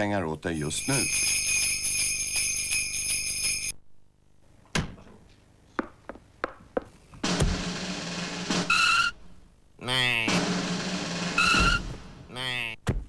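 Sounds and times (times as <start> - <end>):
bell-like chimes: 0.8 - 3.7
loud noise burst with thump: 7.2 - 8.8, 10.3 - 12.2.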